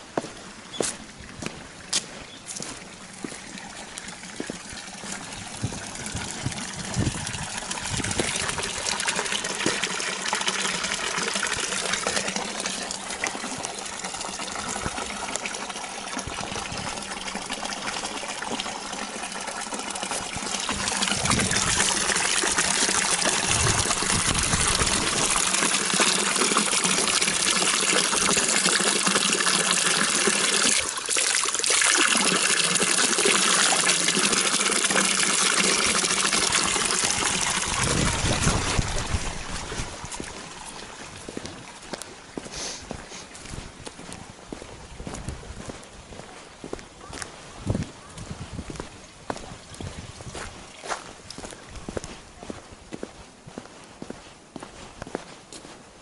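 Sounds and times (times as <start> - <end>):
water splashing into stone basin: 2.1 - 42.2.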